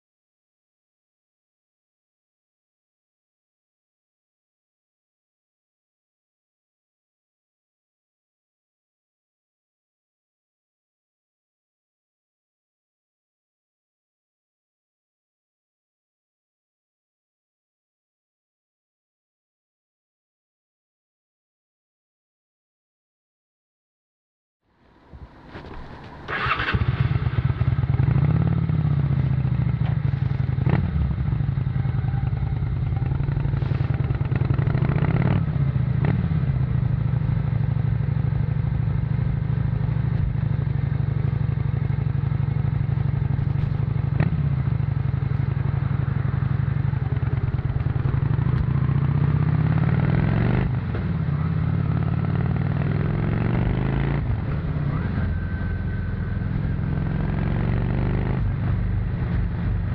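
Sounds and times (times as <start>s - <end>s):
v-twin motorcycle engine running: 25.6s - 59.9s.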